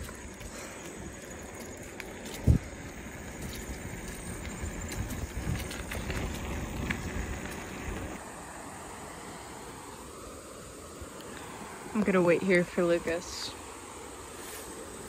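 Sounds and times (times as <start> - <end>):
bicycle tyres rumbling: 0.0 - 8.2
wind on microphone: 2.3 - 8.2.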